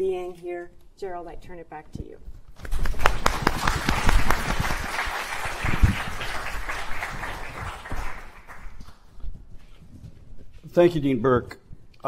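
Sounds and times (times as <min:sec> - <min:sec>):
audience applauding: 0:02.6 - 0:09.0.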